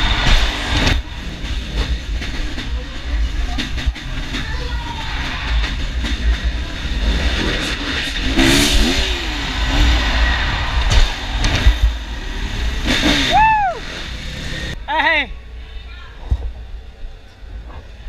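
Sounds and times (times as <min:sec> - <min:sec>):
dirt bike engine running: 0:00.0 - 0:15.6
rising and falling pitched sound: 0:05.2 - 0:14.8.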